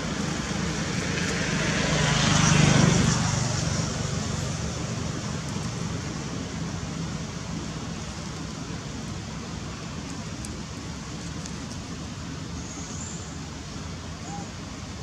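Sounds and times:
motor vehicle passing: 0.0 - 6.3.

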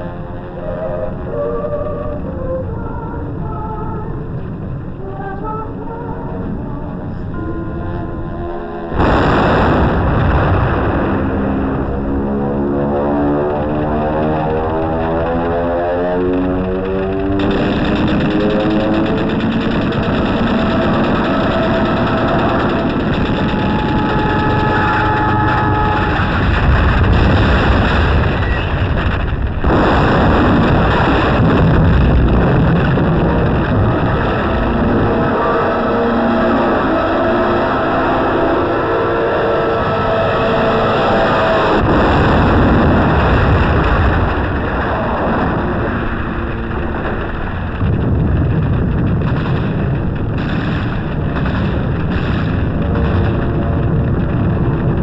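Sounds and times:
thin whining tones: 0.2 - 4.3
explosions: 8.9 - 36.2, 41.2 - 55.0
gunfire: 17.1 - 34.7, 47.8 - 55.0
battle noise roar: 32.8 - 43.8.

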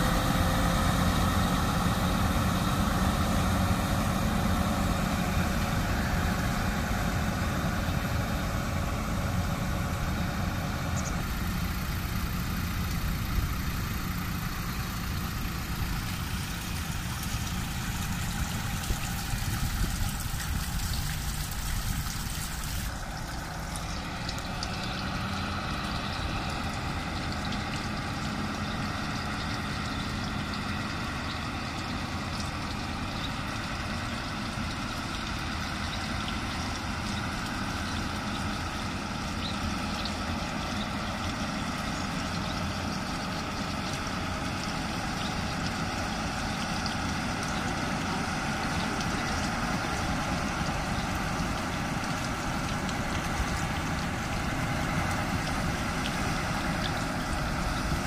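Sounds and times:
water spraying hiss: 0.0 - 29.8
diesel truck engine running: 0.0 - 58.0.

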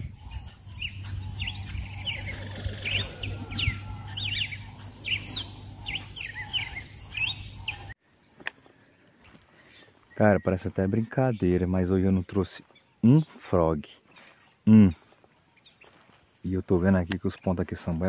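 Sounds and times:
low hum: 0.0 - 7.9
birds chirping: 0.0 - 18.0
high insect drone: 0.0 - 18.0.

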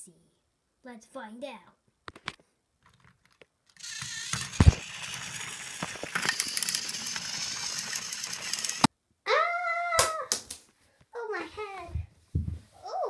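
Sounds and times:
plastic toy trains clattering: 2.9 - 8.9.

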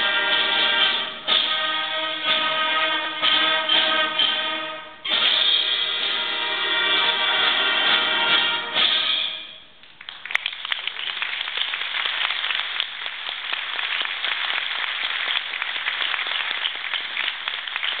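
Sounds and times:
audience applause: 9.8 - 18.0.

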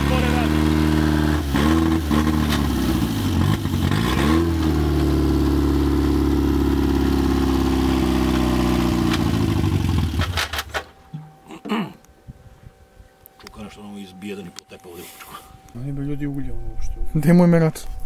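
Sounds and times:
car engine revving and idling: 0.0 - 10.4.

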